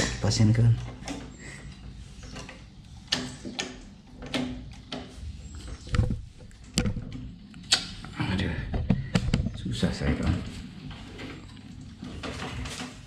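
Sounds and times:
metal clicks and knocks: 0:02.2 - 0:08.0.

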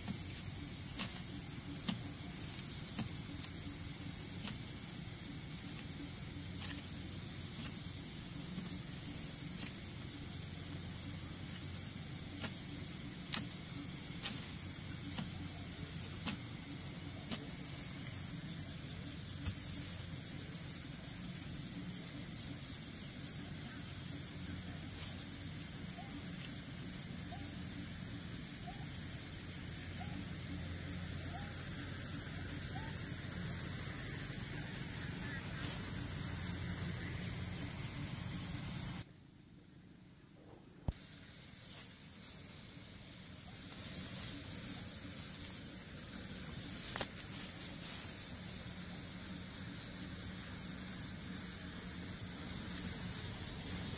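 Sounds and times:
low hum: 0:00.0 - 0:39.0
insects chirring at night: 0:00.0 - 0:53.9.

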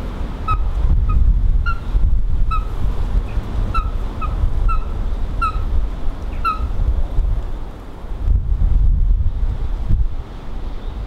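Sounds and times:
wind on microphone: 0:00.0 - 0:11.0
coot calling: 0:02.5 - 0:02.8, 0:03.7 - 0:05.7, 0:06.4 - 0:06.7.

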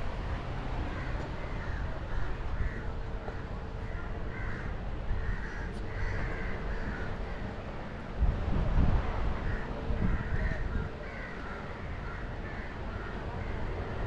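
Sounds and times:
low rumble of wind and water: 0:00.0 - 0:14.0
crows cawing: 0:00.9 - 0:07.5, 0:09.4 - 0:14.0.

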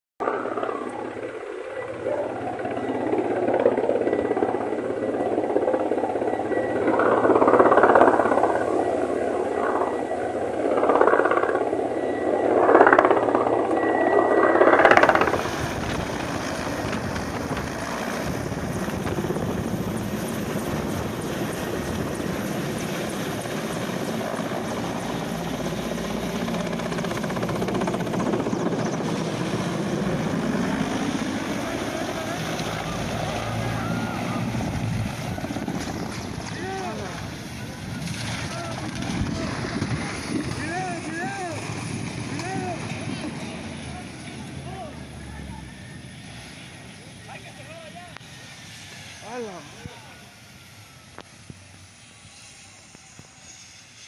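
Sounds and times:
helicopter rotor and turbine noise: 0:00.2 - 0:54.0.

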